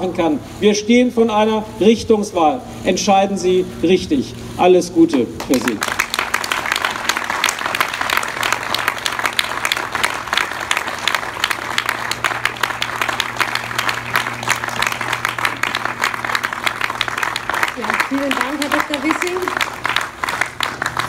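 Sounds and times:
crowd applauding: 0:05.4 - 0:21.0.

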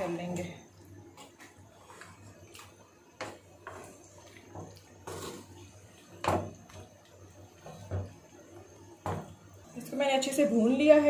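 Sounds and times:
wooden spatula scraping metal pot: 0:03.2 - 0:06.8.

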